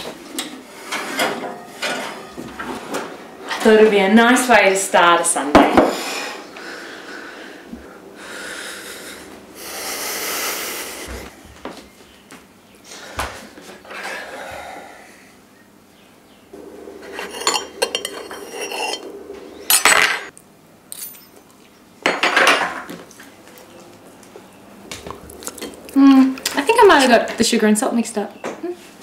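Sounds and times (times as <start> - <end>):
cutlery and plates clinking: 0.4 - 3.7, 17.0 - 20.3.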